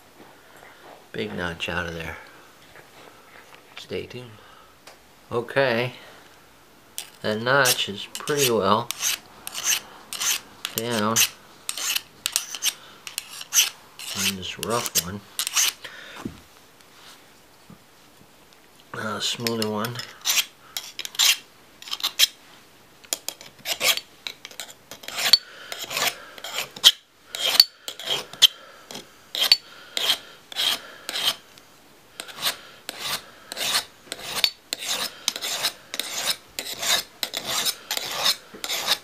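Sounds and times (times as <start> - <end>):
hand file rasping on steel: 7.6 - 15.8, 19.4 - 22.4, 23.3 - 31.4, 32.2 - 39.0.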